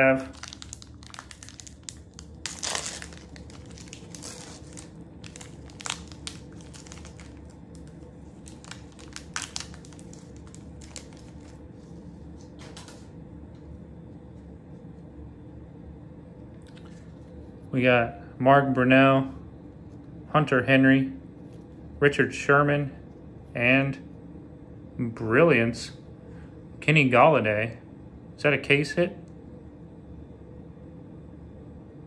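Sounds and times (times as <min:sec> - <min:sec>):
wrapper crinkling: 0:00.0 - 0:13.1
low steady hum: 0:00.0 - 0:32.0.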